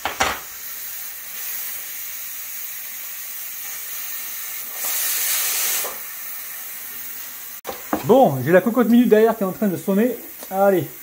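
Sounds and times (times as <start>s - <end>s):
pressure cooker steam hissing: 0.0s - 11.0s.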